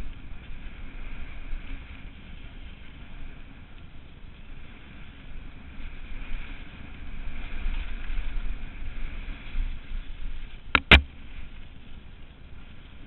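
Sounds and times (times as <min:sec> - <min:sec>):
bike rumbling and rattling on dirt: 0:00.0 - 0:13.0
wind buffeting microphone: 0:00.0 - 0:13.0
sharp knocks: 0:10.8 - 0:11.1.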